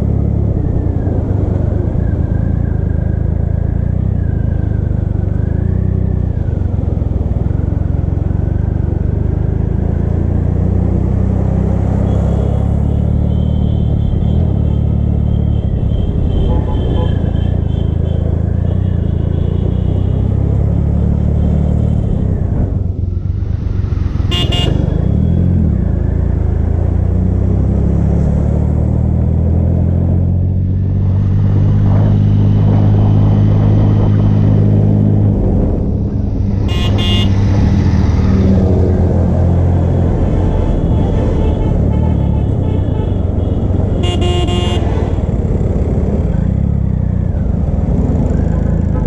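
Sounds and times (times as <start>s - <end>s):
vehicle horn toots: 15.5s - 18.1s, 24.3s - 25.0s, 36.6s - 37.4s, 40.7s - 45.0s.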